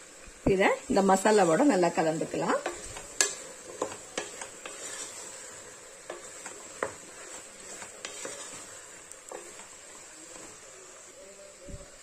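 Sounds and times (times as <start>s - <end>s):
faint sizzle: 0.0s - 12.0s
spatula knocking and scraping pot: 1.2s - 10.6s.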